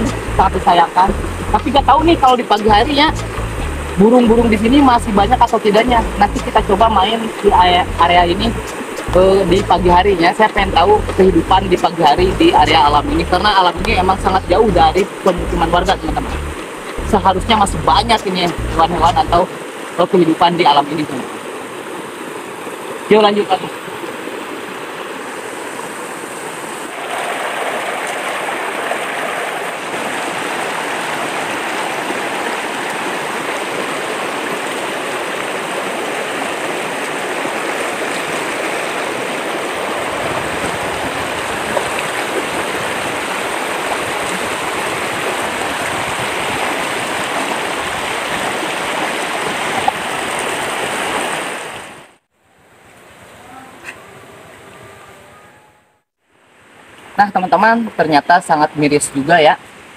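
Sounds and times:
stream rushing over rocks: 0:00.0 - 0:52.2.

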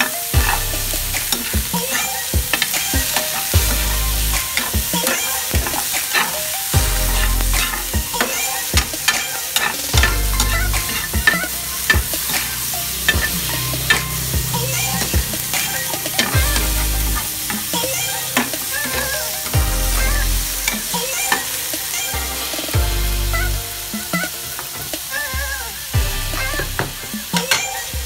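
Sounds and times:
chicken sizzling in frying pan: 0:00.0 - 0:28.0
metal spatula scraping pan: 0:01.2 - 0:19.6.

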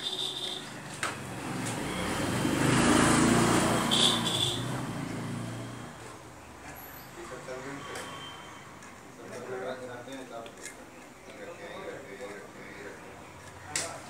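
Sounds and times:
vehicle passing by: 0:00.6 - 0:08.6.

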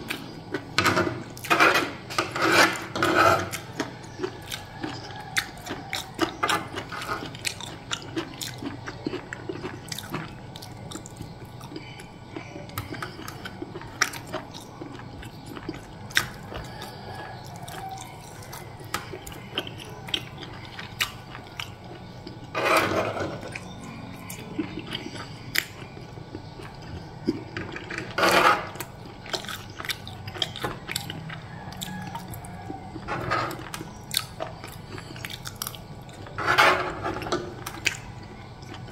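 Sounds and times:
cutlery scraping plastic tray: 0:00.8 - 0:03.9, 0:22.5 - 0:23.5, 0:27.6 - 0:28.9, 0:33.0 - 0:33.8, 0:36.3 - 0:37.7
chewing and biting: 0:02.8 - 0:38.9.

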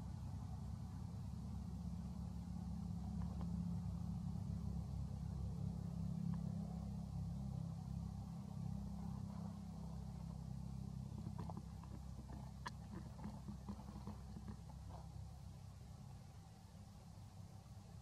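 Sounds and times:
vehicle engine rumbling: 0:00.0 - 0:18.0
faint clicks: 0:11.1 - 0:15.1.

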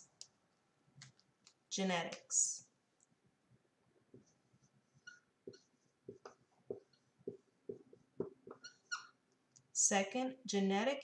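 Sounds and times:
marker pen squeaking on whiteboard: 0:04.1 - 0:09.2.

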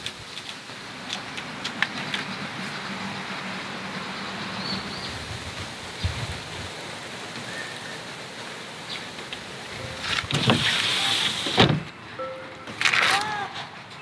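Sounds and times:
outdoor background hiss: 0:00.0 - 0:14.0
knocks and rustling: 0:09.8 - 0:12.0.

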